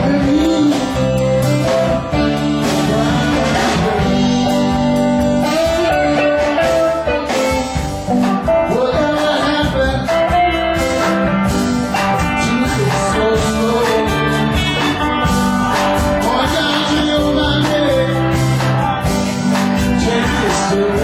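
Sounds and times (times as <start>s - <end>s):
live band playing amplified music: 0.0s - 21.0s.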